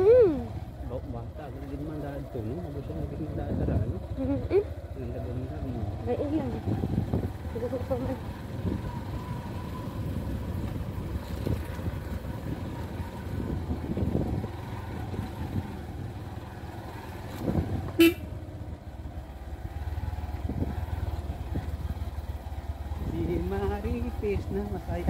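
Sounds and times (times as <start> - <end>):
motorcycle engine: 0.0 - 25.0
wind rumble: 5.6 - 25.0
motorcycle horn beep: 17.9 - 18.4.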